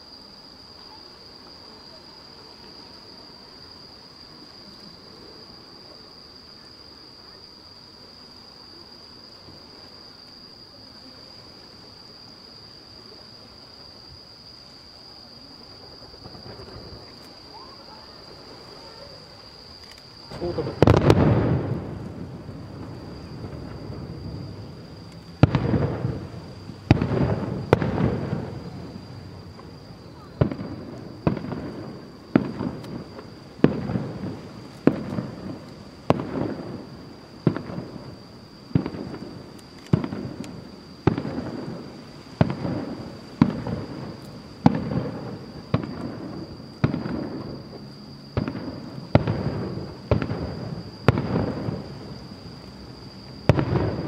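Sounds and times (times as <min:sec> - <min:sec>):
firework shells bursting: 0:19.7 - 0:47.5.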